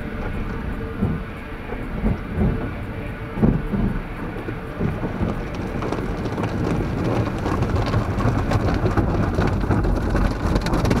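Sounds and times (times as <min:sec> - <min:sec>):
steady low rumble: 0:00.0 - 0:11.0
water spray drumming on car: 0:04.7 - 0:11.0.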